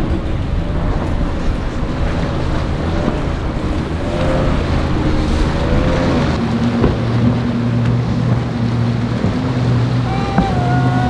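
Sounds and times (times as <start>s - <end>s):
motorboat engine running: 0.0s - 11.0s
waves washing: 0.0s - 11.0s
wind buffeting microphone: 0.0s - 11.0s.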